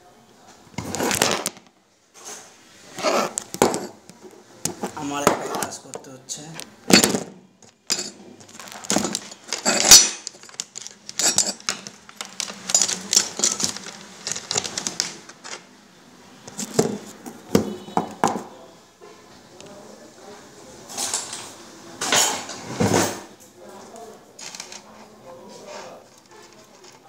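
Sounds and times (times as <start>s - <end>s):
small metal objects clinking: 6.9s - 15.6s.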